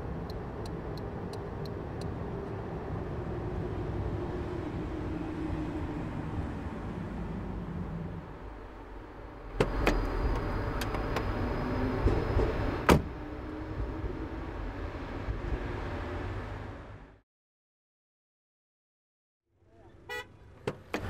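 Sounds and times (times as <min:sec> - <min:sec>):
car door shutting bang: 0:12.8 - 0:13.1.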